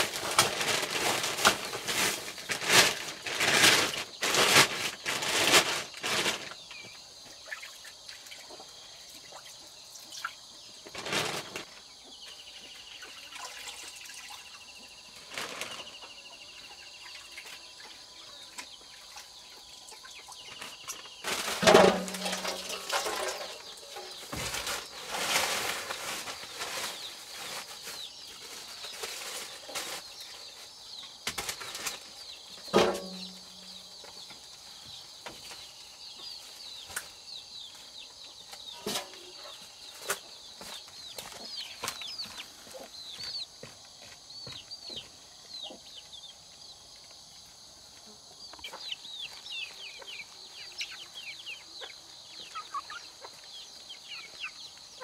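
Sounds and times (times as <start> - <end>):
birds chirping: 25.9 - 55.0.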